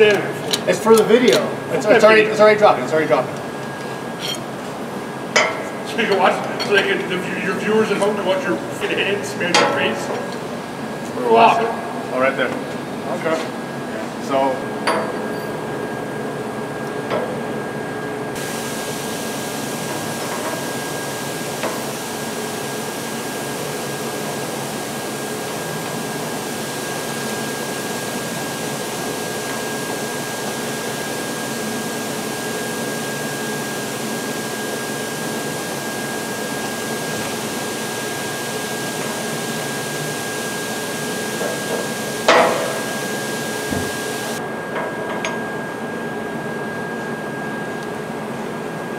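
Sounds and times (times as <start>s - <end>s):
machine hum: 0.0s - 48.7s
constant high whine: 0.0s - 48.9s
steel gears clinking: 4.2s - 4.5s.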